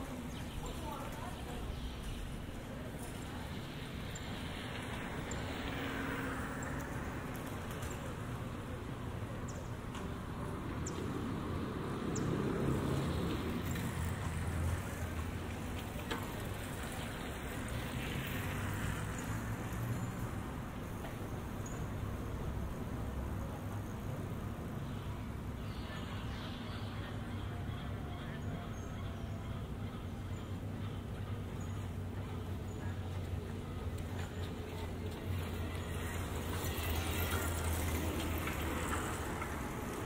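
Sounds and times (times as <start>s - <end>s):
distant traffic rumble: 0.0s - 40.0s
scooter passing: 0.0s - 40.0s.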